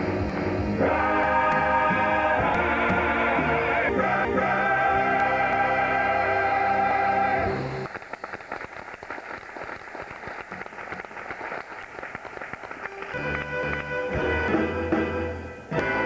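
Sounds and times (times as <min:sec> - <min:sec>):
band music: 0:00.0 - 0:07.9, 0:12.8 - 0:16.0
audience applauding: 0:07.4 - 0:14.4.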